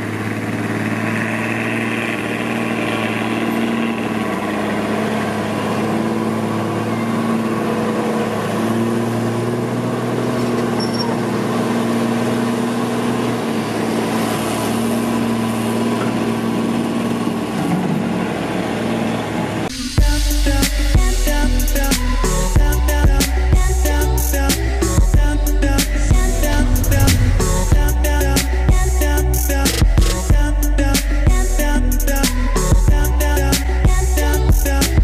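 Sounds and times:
diesel truck engine running: 0:00.0 - 0:35.0
music with strong beat: 0:19.7 - 0:35.0.

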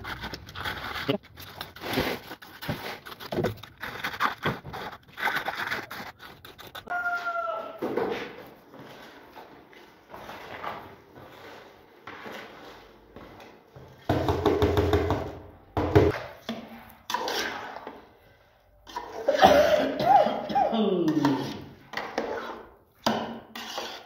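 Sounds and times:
metal spoon scraping a pot: 0:17.0 - 0:18.0, 0:21.1 - 0:24.0.

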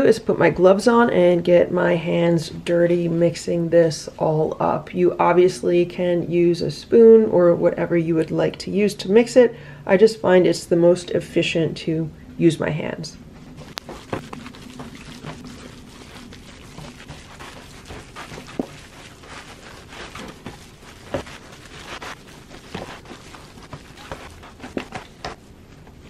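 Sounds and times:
wet squelching of kneaded meat: 0:13.5 - 0:25.6
foil pan crackles: 0:13.6 - 0:25.5.

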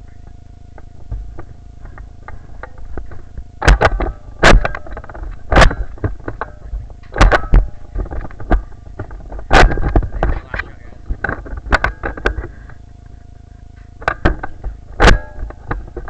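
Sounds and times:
thumps and rubbing on microphone: 0:00.8 - 0:12.7.

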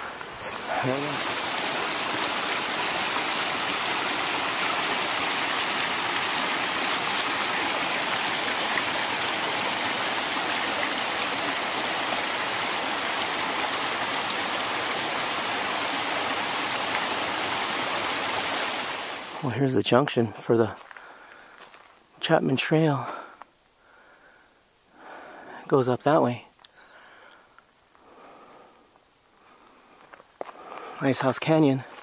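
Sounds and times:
creek rushing over boulders: 0:00.0 - 0:20.9.

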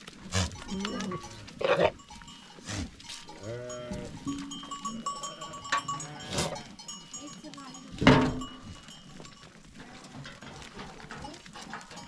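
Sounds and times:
goats bleating: 0:00.2 - 0:07.1
bell ringing: 0:02.0 - 0:09.5.

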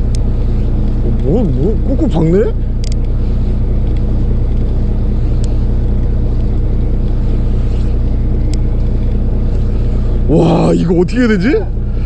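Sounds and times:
faint ticks: 0:00.0 - 0:01.0, 0:02.8 - 0:03.2, 0:03.8 - 0:07.2, 0:08.0 - 0:09.2
boat engine droning: 0:00.0 - 0:12.0.

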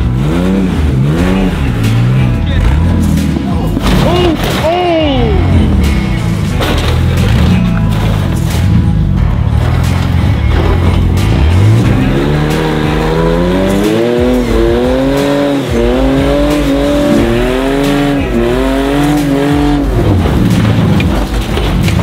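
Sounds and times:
car engine revving: 0:00.0 - 0:22.0
tires spinning on rock: 0:05.8 - 0:22.0.

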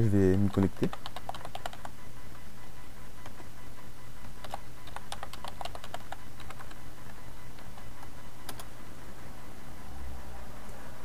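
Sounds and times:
keyboard keys clicking: 0:00.2 - 0:01.9, 0:04.4 - 0:06.8, 0:08.5 - 0:08.7.

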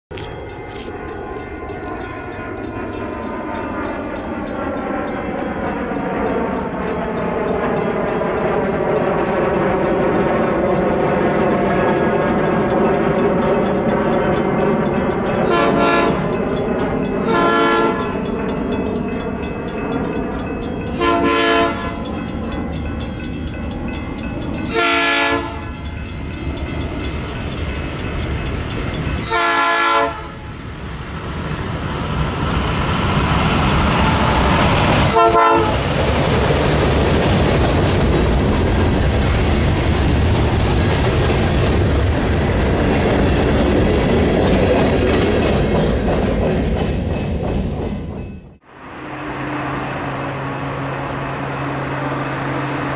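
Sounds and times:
train cars clattering past: 0:00.1 - 0:52.9
train horn blasts: 0:15.4 - 0:16.3, 0:17.2 - 0:18.1, 0:20.9 - 0:22.1, 0:24.6 - 0:25.8, 0:29.2 - 0:30.5, 0:35.1 - 0:35.9.

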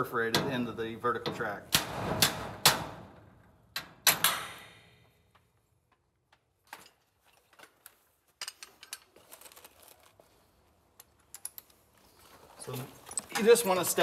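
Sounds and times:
small metal parts rattling: 0:08.4 - 0:10.2, 0:11.0 - 0:14.0.

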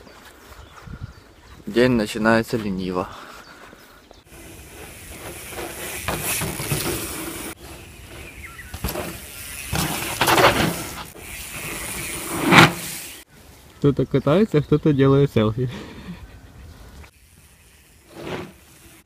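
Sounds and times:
mountain bikes passing on dirt: 0:04.0 - 0:13.7, 0:17.0 - 0:19.0.

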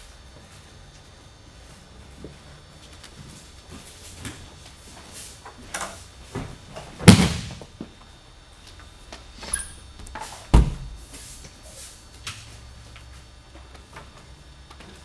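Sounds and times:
body hitting mat: 0:06.4 - 0:07.6.

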